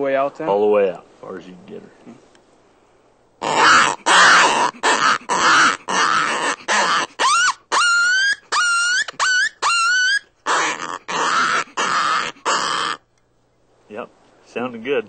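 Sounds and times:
gravelly coyote growls from predator call: 0:03.4 - 0:13.0
high rising pup distress yelps: 0:03.4 - 0:13.1.

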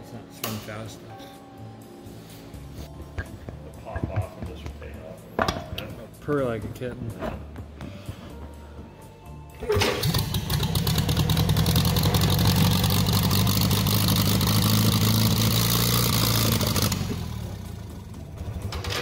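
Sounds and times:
tractor engine running fast: 0:09.7 - 0:19.0.

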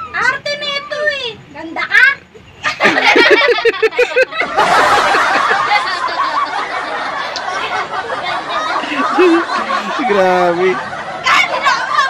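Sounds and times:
girls laughing: 0:02.6 - 0:12.0.

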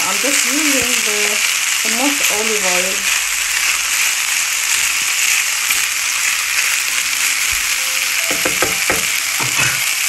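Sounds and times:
rice sizzling in a pan: 0:00.0 - 0:10.0
spatula knocking on pan: 0:08.2 - 0:10.0.

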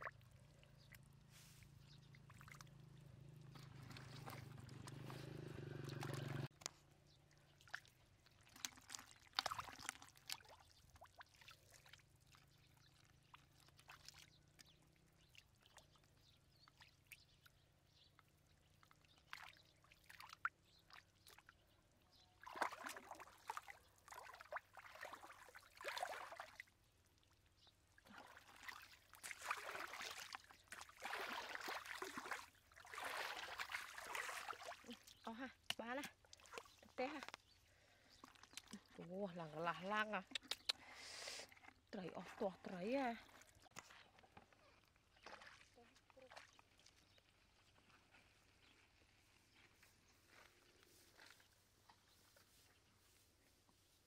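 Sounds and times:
hands splashing in muddy water: 0:02.2 - 0:06.5, 0:07.6 - 0:12.0, 0:22.4 - 0:26.7, 0:28.1 - 0:37.4, 0:45.0 - 0:48.0.

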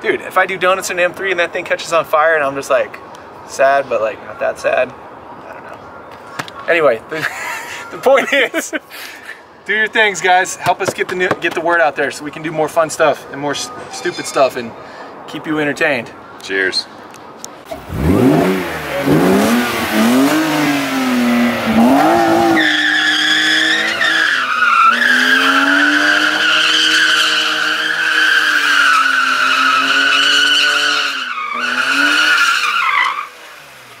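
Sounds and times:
tires squealing: 0:17.7 - 0:33.9
car engine revving: 0:17.7 - 0:34.0.

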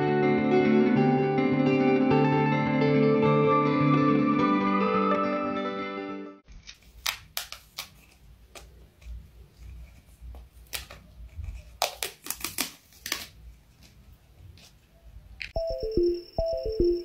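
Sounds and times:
cat claws scratching wallpaper: 0:06.5 - 0:14.8.

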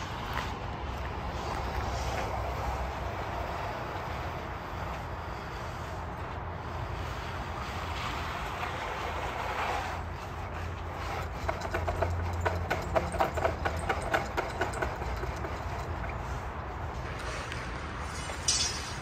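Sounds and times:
hand tools clicking and scraping: 0:08.5 - 0:19.0
engine idling: 0:10.6 - 0:16.8.

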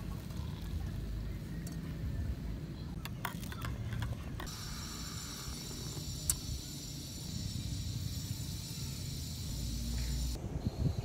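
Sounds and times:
steady high buzz: 0:04.5 - 0:11.0.

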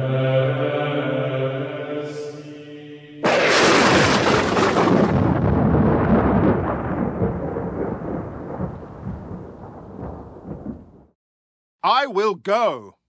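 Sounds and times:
thunder rumbling: 0:03.2 - 0:11.2.

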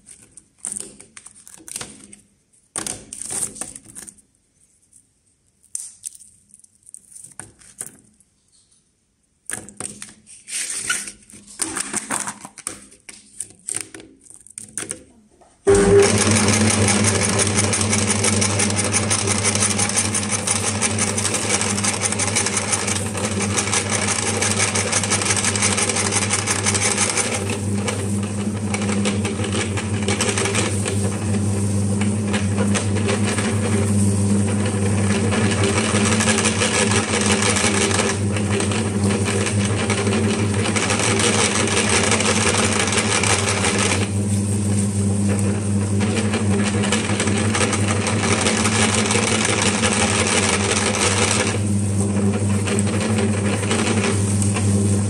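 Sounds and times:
meat grinder motor hum: 0:15.7 - 0:55.0.

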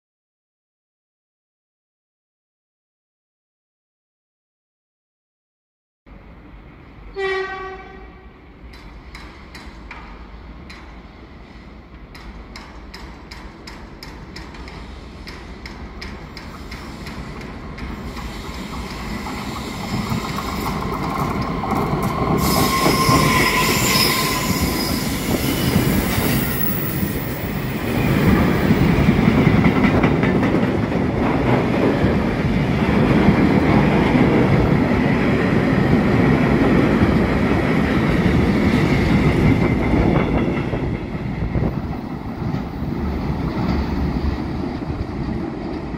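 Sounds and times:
freight train rumbling past: 0:06.1 - 0:45.9
train wheel squeal: 0:16.3 - 0:29.1.

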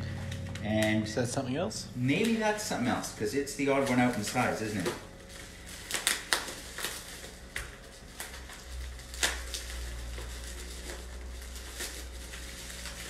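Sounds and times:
scissors snipping bubble wrap: 0:02.1 - 0:13.0.

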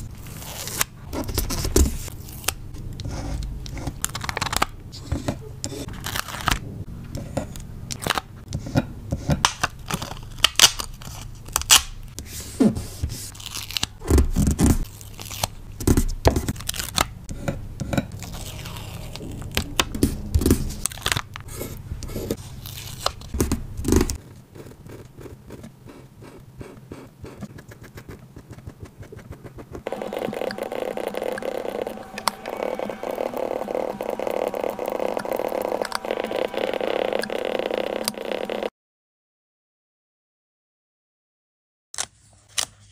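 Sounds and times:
paper and stickers handled: 0:07.2 - 0:29.8
steady hum: 0:29.8 - 0:38.7.

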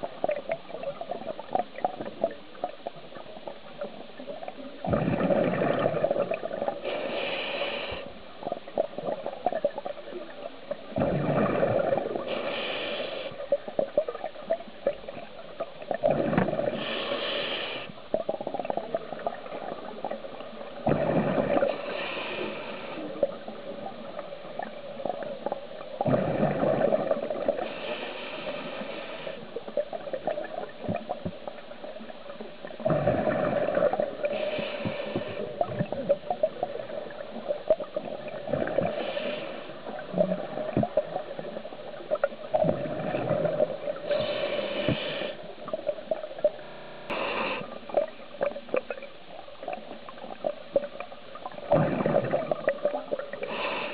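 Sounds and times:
exhaled bubbles gurgling: 0:00.0 - 0:53.9
regulator hiss: 0:06.8 - 0:08.2, 0:16.8 - 0:18.0, 0:44.1 - 0:45.5.

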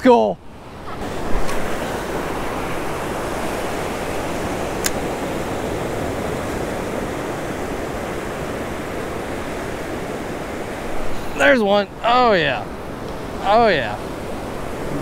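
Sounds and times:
ocean surf washing up beach: 0:00.4 - 0:15.0
sharp click: 0:04.8 - 0:05.0.

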